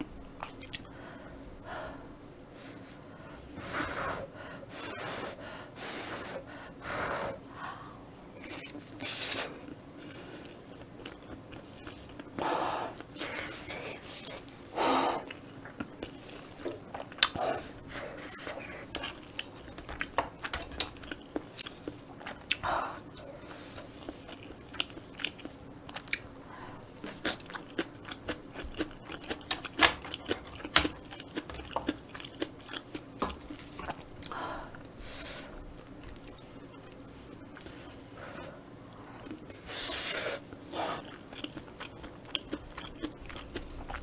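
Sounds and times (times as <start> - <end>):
wet chewing mouth sounds: 0.0 - 0.9, 8.4 - 14.5, 15.2 - 26.3, 27.0 - 35.0, 39.0 - 44.0.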